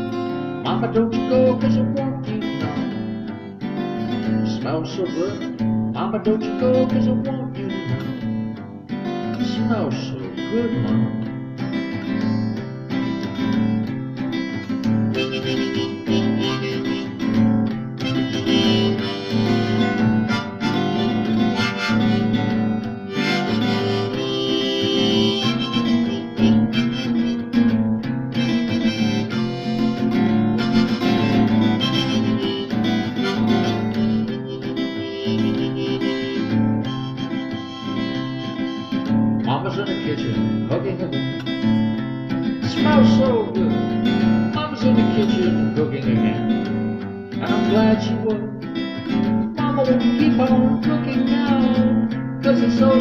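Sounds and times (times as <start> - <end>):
strummed acoustic guitar: 0.0 - 53.0
harmonica solo: 2.4 - 5.8, 10.4 - 48.2.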